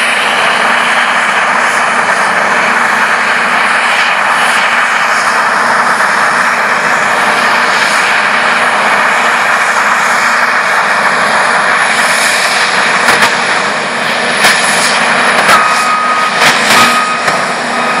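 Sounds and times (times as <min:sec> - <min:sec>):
combine harvester drone: 0:00.0 - 0:18.0
steady high beep: 0:15.4 - 0:18.0.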